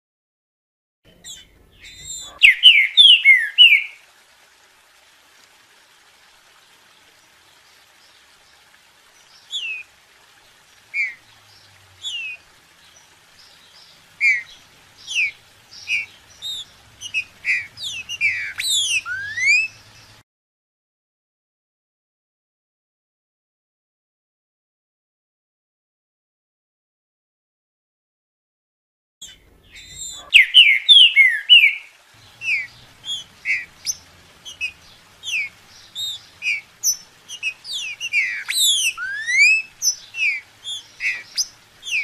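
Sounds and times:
bird singing whistled notes: 0:01.3 - 0:04.0, 0:13.8 - 0:19.8, 0:29.2 - 0:42.0.

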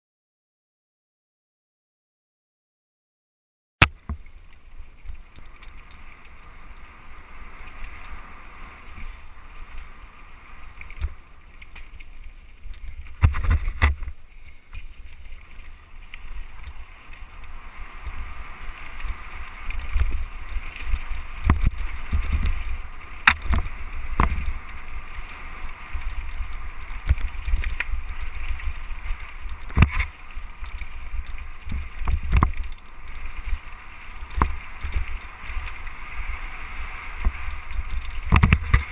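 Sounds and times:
bike tyres rolling through leaves: 0:04.1 - 0:38.9
wind rumble on microphone: 0:12.5 - 0:38.9
bike knocking and rattling: 0:12.7 - 0:15.3, 0:19.1 - 0:33.2, 0:37.2 - 0:38.9.

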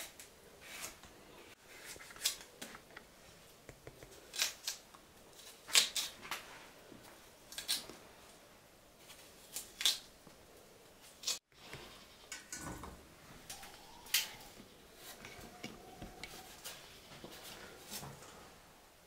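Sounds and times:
knife scraping vegetable skin: 0:03.9 - 0:06.2.

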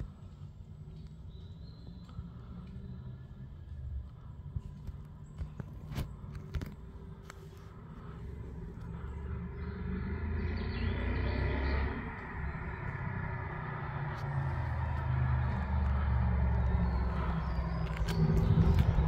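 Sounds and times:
car engine approaching: 0:00.0 - 0:19.0.

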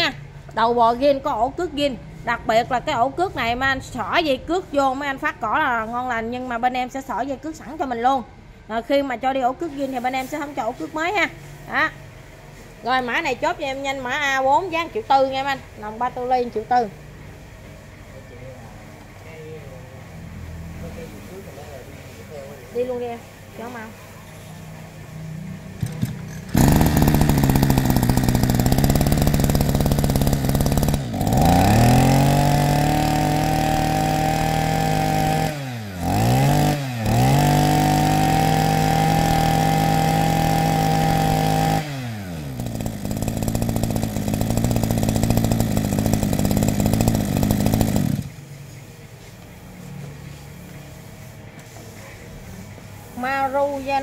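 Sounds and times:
brush cutter engine revving: 0:25.8 - 0:48.4.

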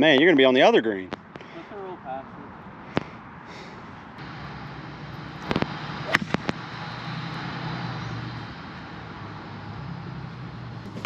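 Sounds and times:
golf cart humming: 0:03.5 - 0:11.0.

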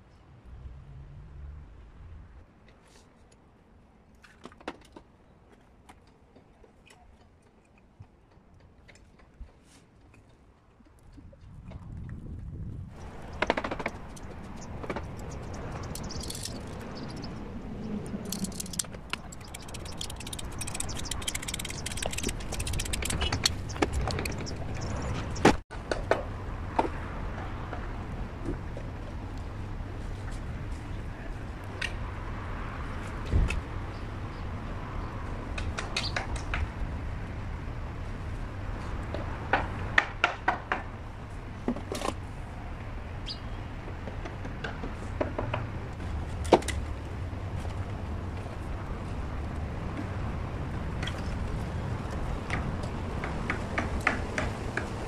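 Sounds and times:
steady low rumble: 0:11.6 - 0:25.6
plastic pipe fittings clicking: 0:13.4 - 0:17.3, 0:18.2 - 0:24.6.

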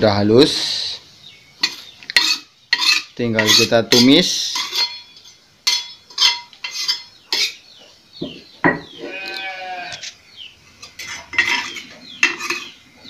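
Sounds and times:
metal spoon scraping a wok: 0:01.6 - 0:07.6, 0:10.6 - 0:13.0
animal bleating: 0:08.9 - 0:10.1.

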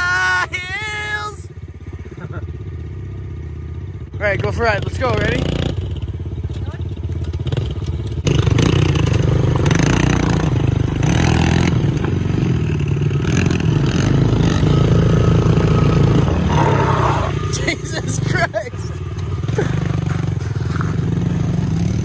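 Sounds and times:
pit bike engines running: 0:00.0 - 0:22.0.

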